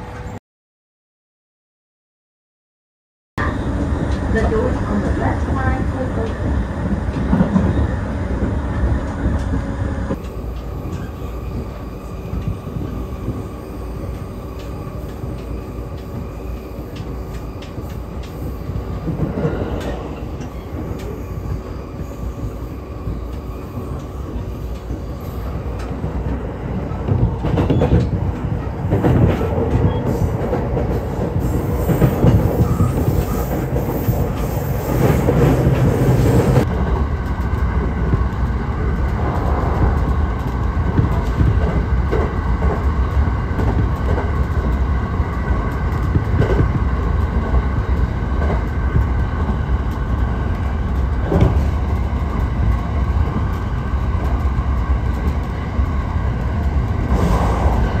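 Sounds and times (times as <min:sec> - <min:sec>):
train rumbling on rails: 0:00.0 - 0:00.4, 0:03.4 - 0:58.0
train wheels knocking: 0:25.7 - 0:36.7.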